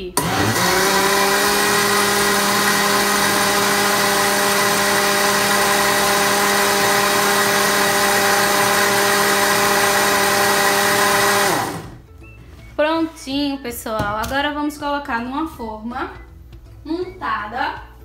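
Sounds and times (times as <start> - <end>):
blender motor humming: 0.2 - 12.0.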